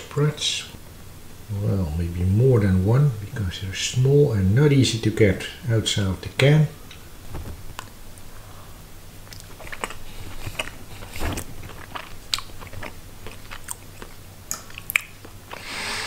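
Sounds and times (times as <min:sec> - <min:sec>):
person chewing wet food: 0:09.1 - 0:15.8
wet mouth clicks and smacks: 0:09.2 - 0:15.6.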